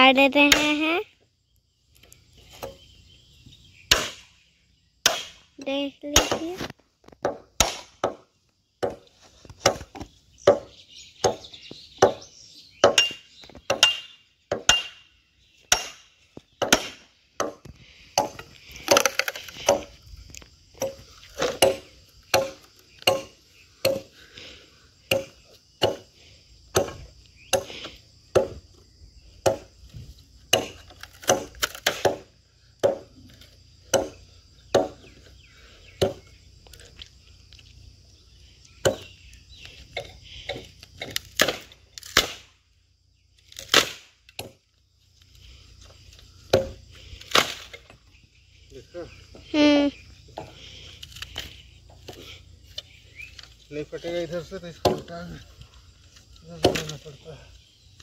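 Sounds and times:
blade chopping bamboo: 0:03.9 - 0:04.3, 0:05.0 - 0:05.5, 0:06.1 - 0:12.2, 0:12.8 - 0:15.0, 0:15.7 - 0:20.0, 0:20.8 - 0:24.1, 0:25.1 - 0:26.1, 0:26.7 - 0:28.6, 0:30.5 - 0:33.2, 0:33.9 - 0:35.1, 0:40.5 - 0:42.5, 0:43.5 - 0:44.6, 0:46.5 - 0:47.8, 0:54.8 - 0:55.1, 0:56.6 - 0:57.0.

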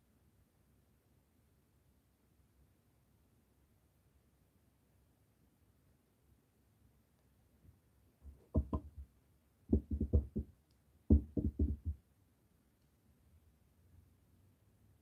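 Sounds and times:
dull knocking: 0:08.2 - 0:09.1, 0:09.7 - 0:10.5, 0:11.1 - 0:12.0.

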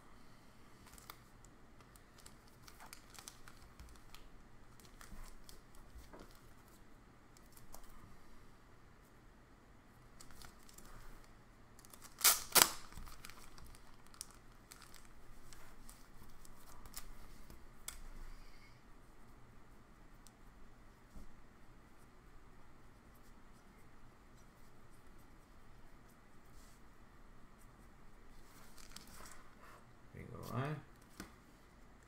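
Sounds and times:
plastic sleeves crinkling: 0:00.8 - 0:06.8, 0:10.2 - 0:11.2, 0:11.8 - 0:18.0, 0:28.3 - 0:29.4.

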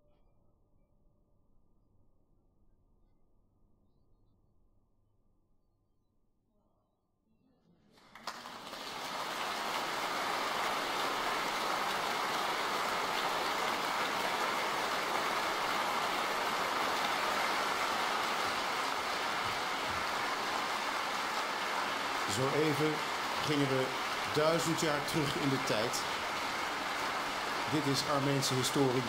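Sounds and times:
audience applauding: 0:08.0 - 0:29.0.

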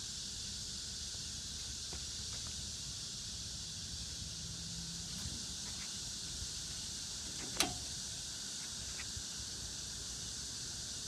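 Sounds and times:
background hiss: 0:00.0 - 0:11.0.

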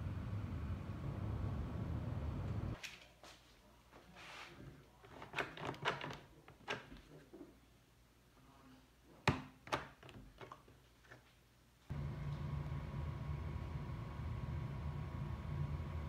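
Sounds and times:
steady hum: 0:11.9 - 0:16.0.

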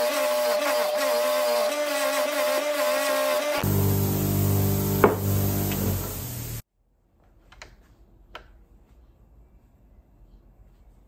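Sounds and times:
bench grinder motor humming: 0:00.0 - 0:06.6.

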